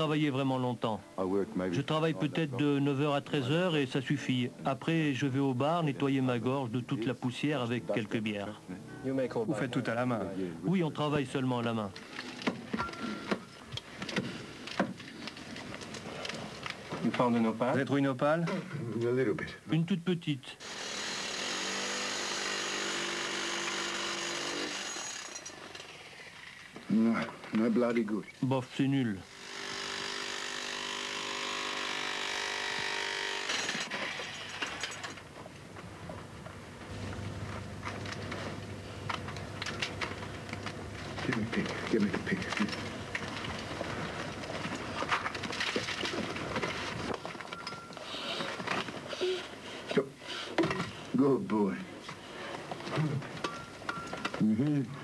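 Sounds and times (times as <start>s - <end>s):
small motorised tool whirring: 20.6s - 26.8s, 29.2s - 35.2s.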